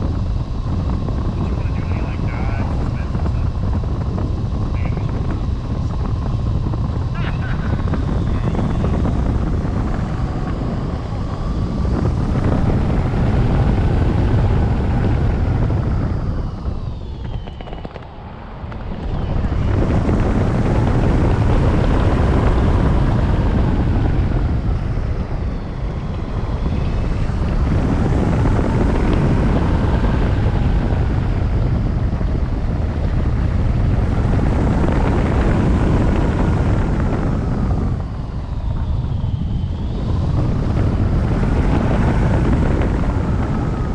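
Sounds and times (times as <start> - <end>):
wind buffeting microphone: 0.0 - 43.9
faint whistling tones: 16.2 - 19.8, 37.9 - 41.0.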